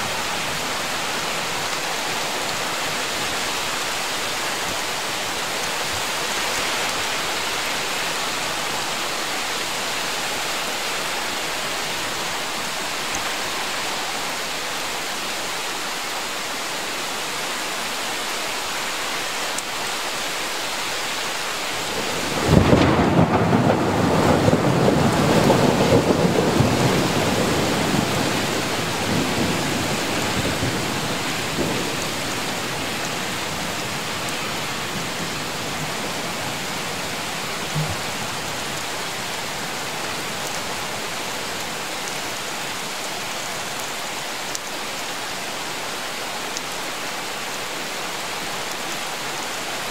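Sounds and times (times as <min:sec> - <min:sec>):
steady rain falling: 0:00.0 - 0:49.9
thunder clap and rumble: 0:22.1 - 0:30.9.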